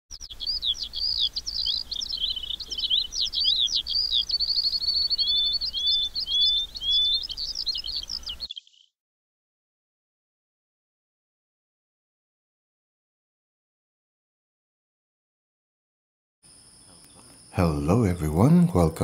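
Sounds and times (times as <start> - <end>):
songbirds chirping and singing: 0.1 - 8.9, 16.9 - 19.0.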